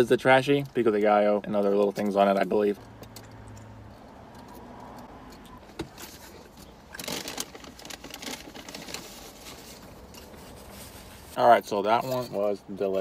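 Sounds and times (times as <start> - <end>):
foil wrapper crinkling: 6.9 - 11.4.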